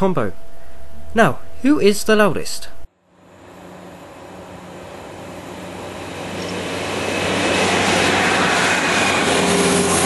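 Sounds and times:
thin high whine: 0.0 - 10.0
diesel trains climbing on full power: 3.1 - 10.0.

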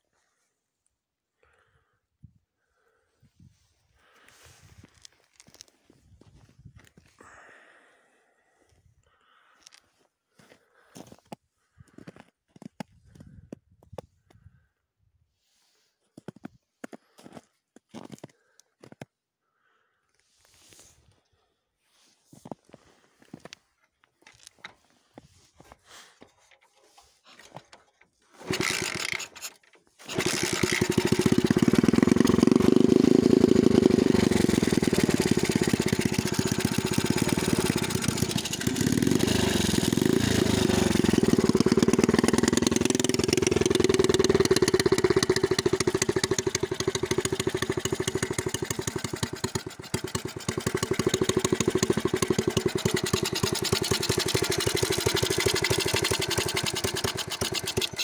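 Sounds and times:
moped engine starting and running: 24.2 - 58.0.

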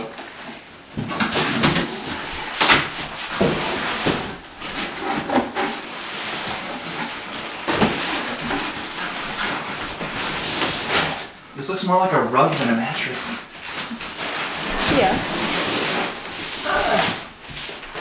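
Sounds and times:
cardboard scraping and rustling: 0.3 - 11.4, 12.4 - 18.0
plastic crinkling: 12.4 - 18.0.

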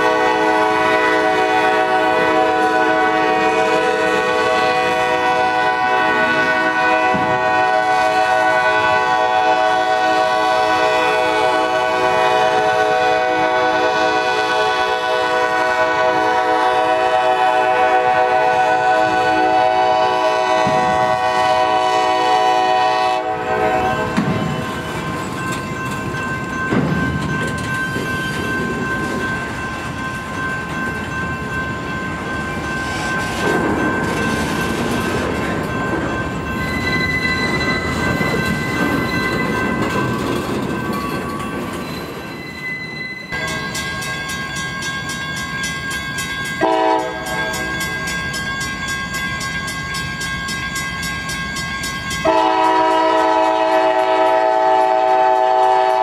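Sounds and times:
train horn: 0.0 - 24.4, 46.6 - 47.7, 52.2 - 56.0
train cars rumbling past: 0.0 - 56.0
wheel squeal: 36.6 - 39.8.

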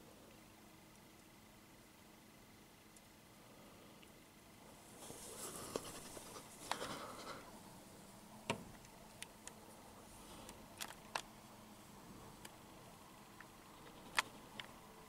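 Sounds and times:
soft rustle: 4.6 - 15.0.

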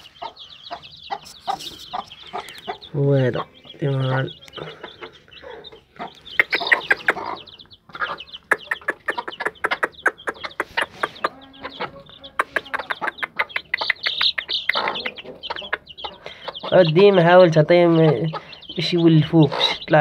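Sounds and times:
chicks peeping: 0.0 - 20.0
hen clucking: 0.0 - 20.0
beaks tapping on hard floor: 6.0 - 17.2.

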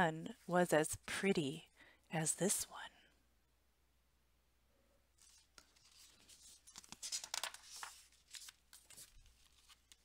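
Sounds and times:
book pages rustling: 5.2 - 10.0.

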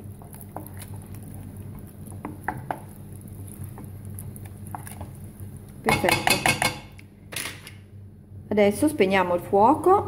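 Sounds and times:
wooden spoon stirring risotto: 0.0 - 5.9
low steady hum: 0.0 - 10.0
spoon knocking pot: 5.9 - 7.0.

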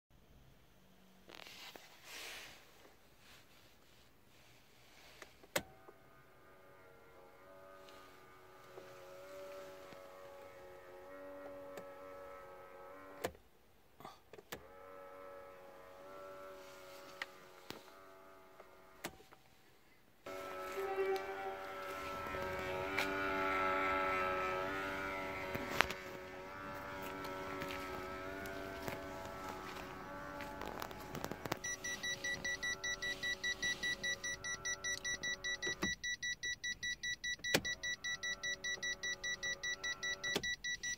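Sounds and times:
faint electrical whine: 14.5 - 35.9.

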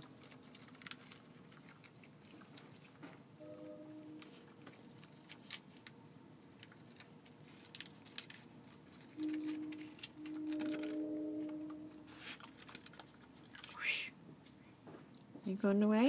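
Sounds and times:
animal chewing and smacking: 0.0 - 3.2
steady low hum: 0.0 - 16.0.

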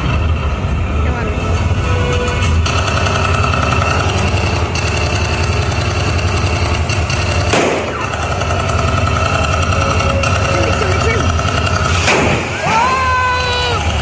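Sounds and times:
engine-like rumble: 0.0 - 14.0
sharp bang: 7.5 - 8.2, 11.9 - 12.7.

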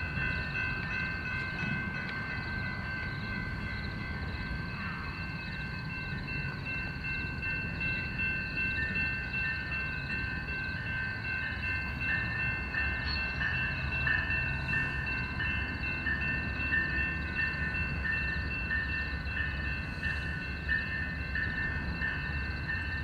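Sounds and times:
low rumble of train: 0.0 - 23.0
railroad crossing bells ringing: 0.0 - 23.0.

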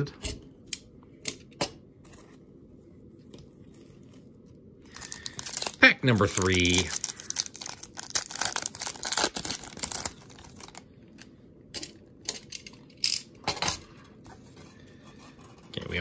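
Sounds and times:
cards rustling: 4.9 - 10.8
wrapper tearing and crinkling: 4.9 - 10.8.

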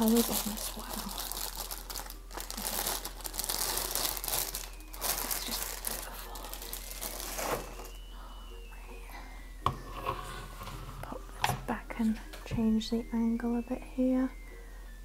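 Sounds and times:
plastic bag crinkling: 0.0 - 8.0.

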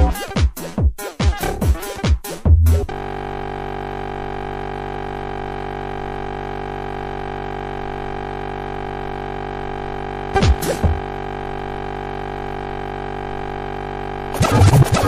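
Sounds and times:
loud electronic hits: 14.3 - 15.0.

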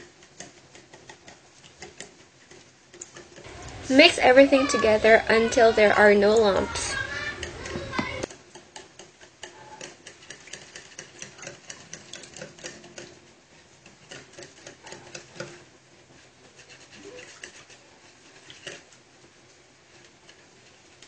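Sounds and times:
utensil clicking against bowl: 0.0 - 3.8, 7.0 - 13.2, 13.8 - 15.6.

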